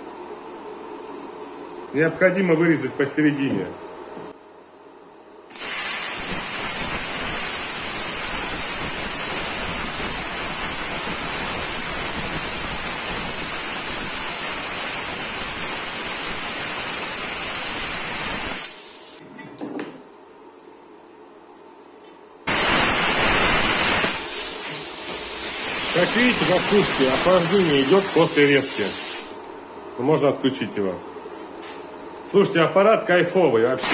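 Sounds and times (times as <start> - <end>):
plasma cutter hissing and whining: 5.5 - 19.2, 22.5 - 29.4.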